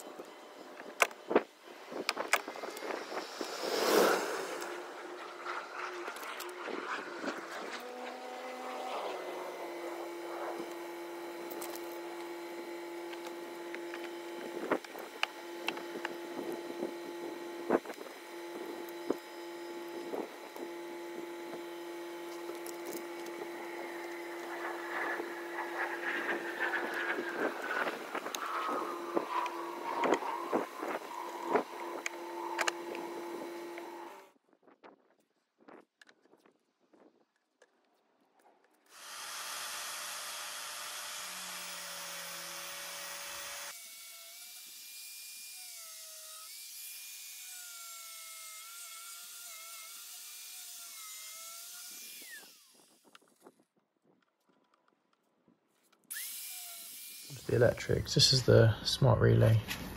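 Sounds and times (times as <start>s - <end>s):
falling whine: 0.0s - 34.3s
steady motor hum: 0.0s - 34.4s, 38.9s - 53.6s.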